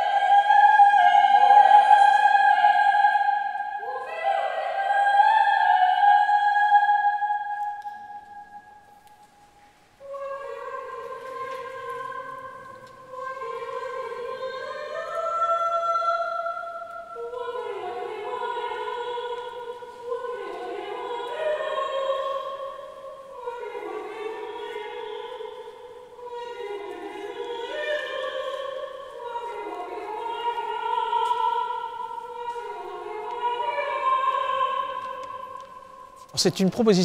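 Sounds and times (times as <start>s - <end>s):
choir singing a cappella: 0.0s - 8.6s, 10.0s - 36.2s.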